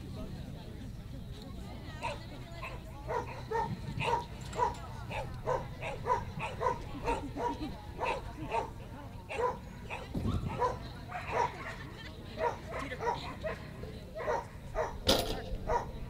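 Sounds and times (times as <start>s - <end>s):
dog barking: 2.0s - 11.8s, 12.4s - 15.0s, 15.6s - 16.0s.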